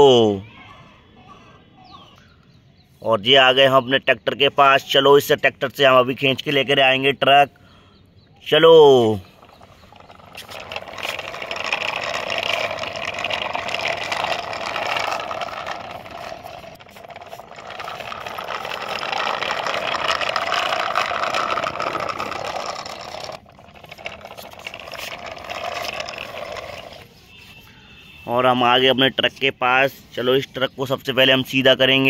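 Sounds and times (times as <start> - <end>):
toy wheels rattling on concrete: 8.5 - 28.9.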